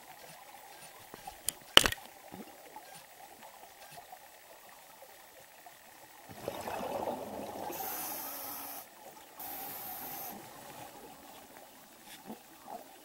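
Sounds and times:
gurgling exhaled bubbles: 0:06.3 - 0:08.8
hissing regulator breaths: 0:07.7 - 0:10.7.

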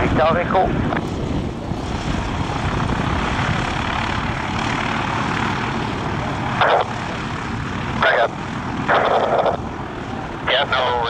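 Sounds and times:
aircraft engine rushing: 0:00.0 - 0:11.0.

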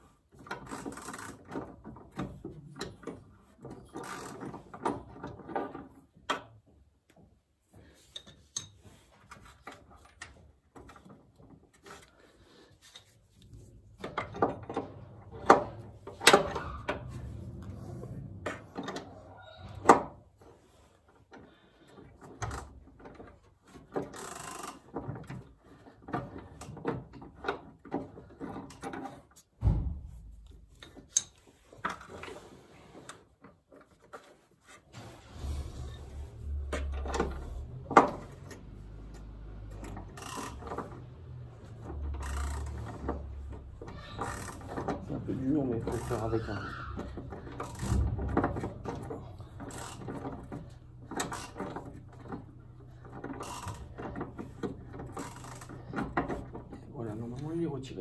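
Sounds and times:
ratchet metallic clicks and knocks: 0:22.4 - 0:31.5, 0:36.7 - 0:56.9
dull thump: 0:29.6 - 0:30.8.

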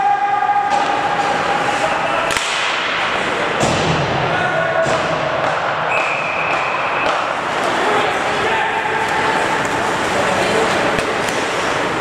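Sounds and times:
arena noise: 0:00.0 - 0:12.0
stick hitting puck: 0:00.7 - 0:01.4, 0:02.2 - 0:04.0, 0:04.8 - 0:07.9.

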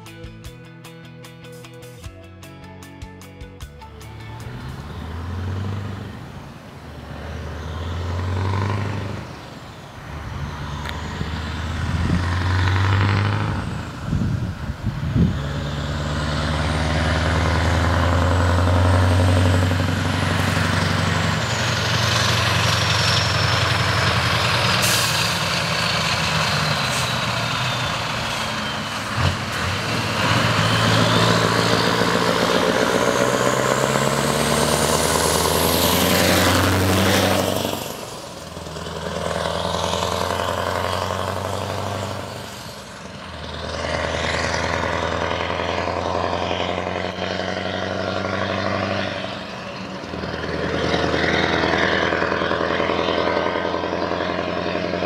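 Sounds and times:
diesel trucks driving past: 0:03.6 - 0:55.0.

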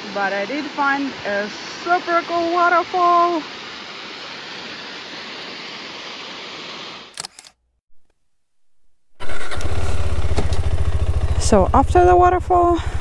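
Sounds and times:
waterfall rushing: 0:00.0 - 0:07.0
motorcycle engine running: 0:09.2 - 0:13.0.

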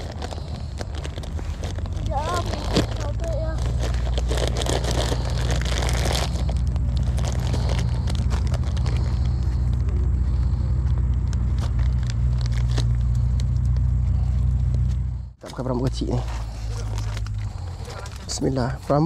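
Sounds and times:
plastic bag crackling: 0:00.0 - 0:13.8
low engine drone: 0:00.0 - 0:19.0.

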